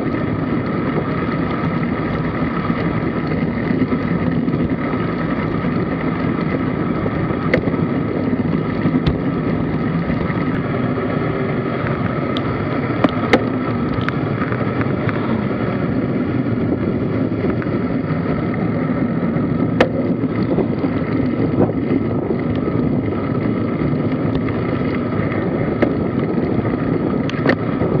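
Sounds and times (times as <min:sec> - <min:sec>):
wind rush on microphone: 0:00.0 - 0:28.0
sharp clicks and knocks: 0:07.3 - 0:10.7, 0:11.8 - 0:15.2, 0:19.7 - 0:22.7, 0:25.8 - 0:26.3, 0:27.2 - 0:27.7.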